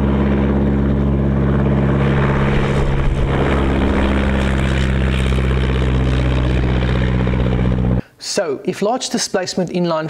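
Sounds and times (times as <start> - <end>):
propeller plane engine running: 0.0 - 8.0.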